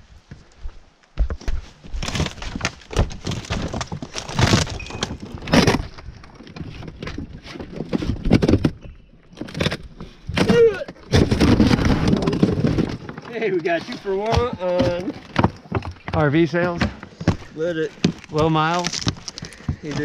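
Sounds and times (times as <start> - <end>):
trailer pieces cracking and clattering: 9.4 - 16.0.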